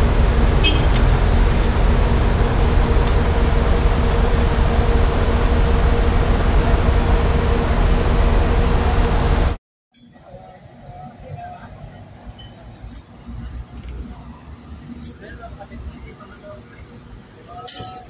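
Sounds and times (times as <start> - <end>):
vehicle engine idling: 0.0 - 9.6.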